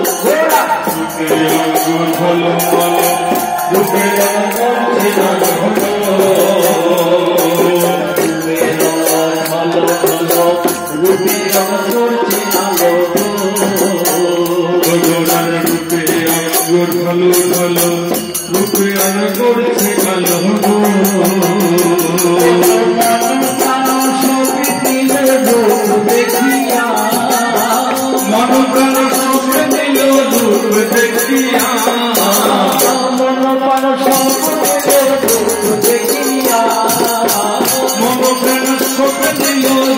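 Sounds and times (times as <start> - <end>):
voices singing a chant: 0.0 - 17.9, 18.6 - 39.9
hand cymbals jingling: 0.0 - 39.9.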